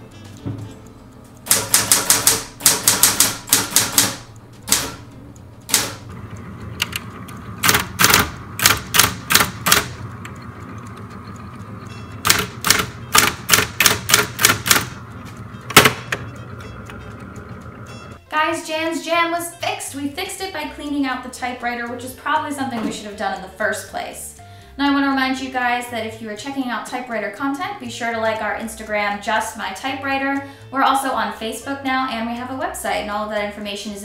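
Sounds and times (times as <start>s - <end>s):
typewriter keystrokes: 1.4s - 5.0s, 5.7s - 6.0s, 6.8s - 10.0s, 12.2s - 15.0s
typewriter motor hum: 1.4s - 17.8s.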